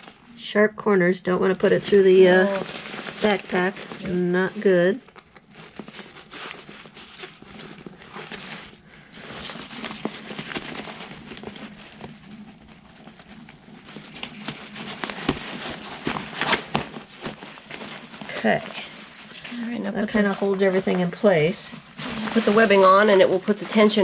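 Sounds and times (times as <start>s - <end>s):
stiff fabric crinkling: 1.4s - 24.0s.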